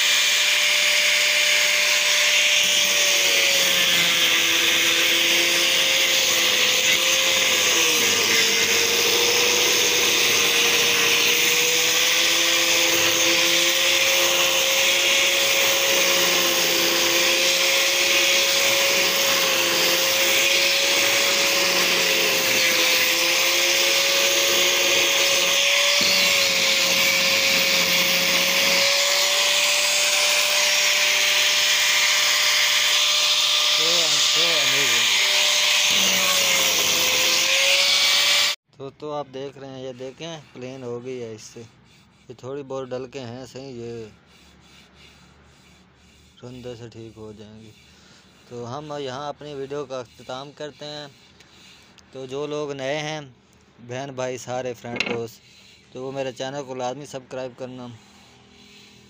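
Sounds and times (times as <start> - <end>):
angle grinder motor whine: 0.0 - 38.6, 54.9 - 55.3
hiss of abrading wood: 44.0 - 52.7, 54.5 - 56.2, 57.7 - 59.0.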